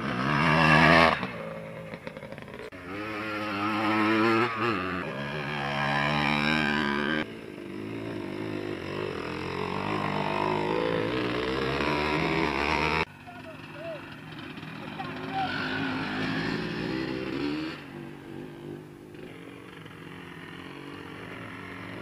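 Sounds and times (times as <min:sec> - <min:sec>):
motorcycle engines revving: 0:00.0 - 0:22.0.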